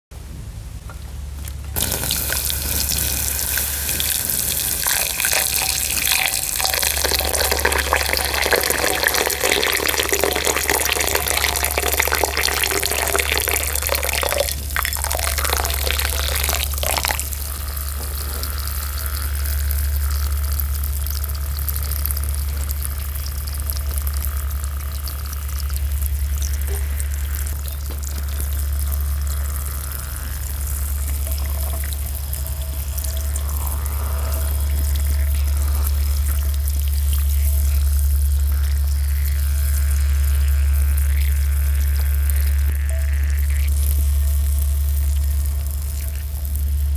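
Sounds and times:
steady low hum: 0.1s - 46.9s
quiet bubbling: 1.5s - 46.9s
water pouring into glass bowl: 1.8s - 39.2s.

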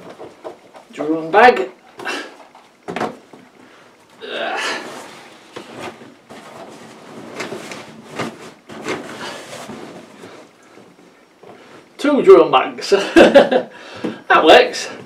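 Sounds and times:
person grunting: 4.2s - 4.9s.

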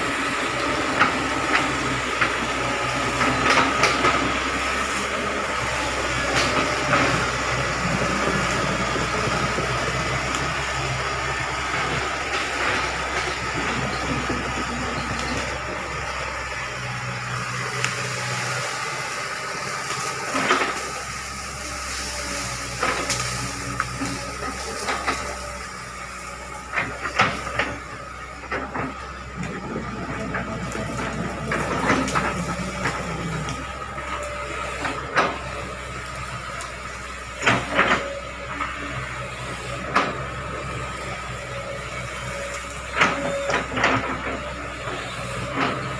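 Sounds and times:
excavator diesel engine running: 0.0s - 45.9s
sharp cracks and knocks: 22.0s - 25.6s.

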